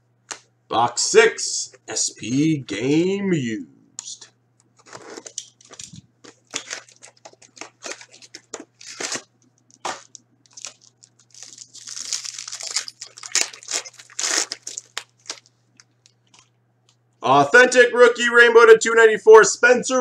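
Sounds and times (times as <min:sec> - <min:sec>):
cardboard and wrapper crinkling: 0:04.8 - 0:16.5.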